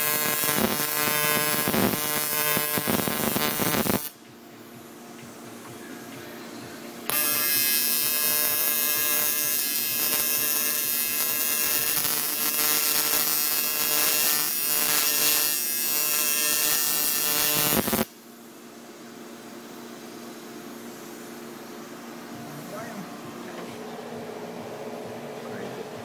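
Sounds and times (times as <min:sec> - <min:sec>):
welding arc buzzing: 0:00.0 - 0:04.2, 0:06.0 - 0:18.3.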